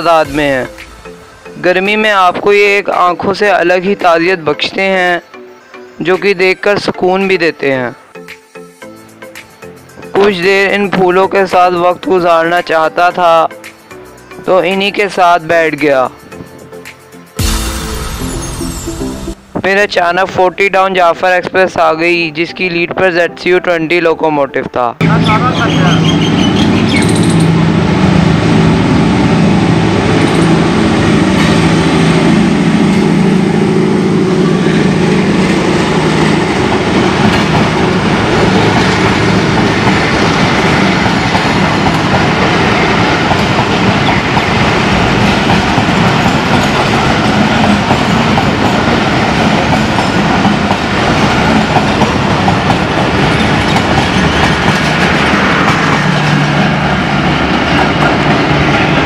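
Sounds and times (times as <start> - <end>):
locomotive engine drone: 25.0 - 59.0
train coaches rolling on rails: 25.0 - 59.0.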